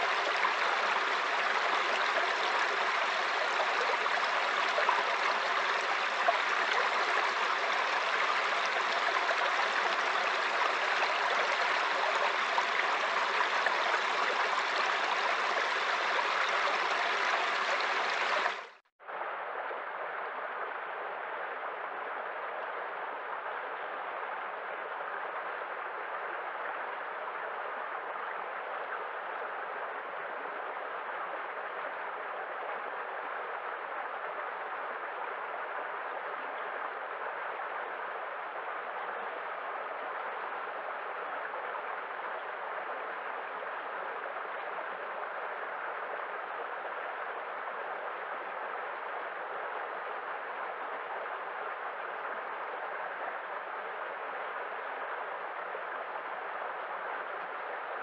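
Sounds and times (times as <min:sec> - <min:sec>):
rushing water: 0:00.0 - 0:18.8.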